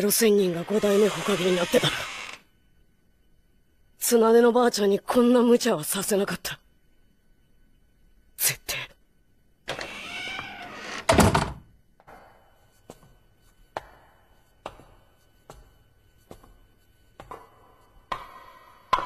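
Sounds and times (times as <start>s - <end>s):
footsteps echoing in corridor: 12.0s - 19.0s.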